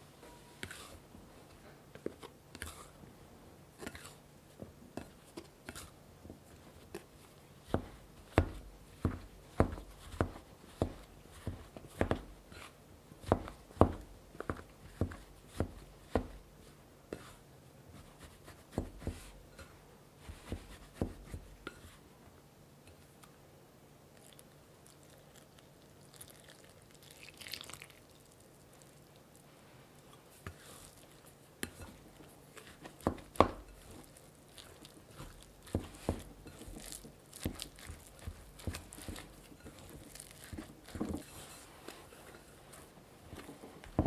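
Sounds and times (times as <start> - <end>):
dough scraper chopping butter: 0.6 - 1.0, 2.0 - 2.9, 6.5 - 16.4, 20.2 - 21.9, 31.6 - 41.6.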